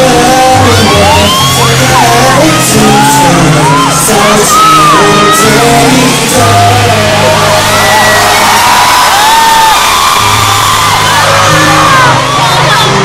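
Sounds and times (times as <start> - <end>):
person singing: 0.0 - 8.9
amplified pop music: 0.0 - 13.0
fans screaming and whooping: 0.0 - 13.0.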